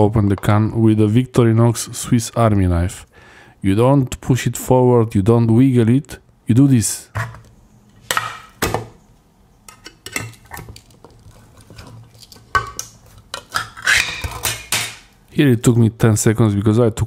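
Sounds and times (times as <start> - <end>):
tin can lid tearing: 10.4 - 15.1.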